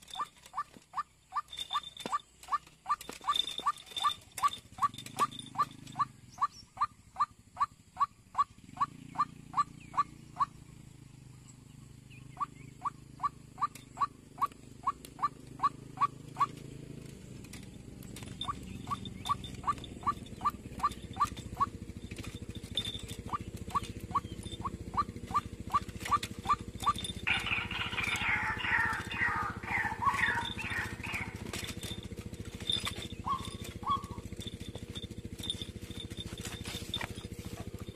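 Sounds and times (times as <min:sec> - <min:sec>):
waterhen calling: 0:18.3 - 0:21.8, 0:22.7 - 0:32.1, 0:32.8 - 0:34.3.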